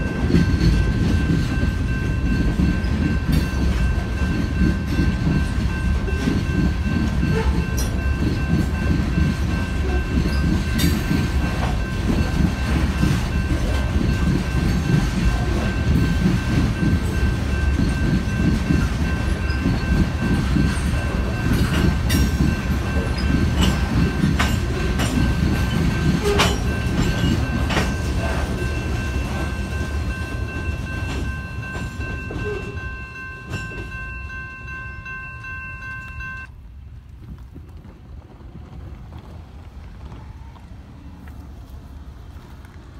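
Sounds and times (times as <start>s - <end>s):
train wheels rumbling: 0.0s - 42.9s
wheels clicking over rail joints: 0.0s - 42.9s
high-pitched ringing tone: 25.2s - 36.5s.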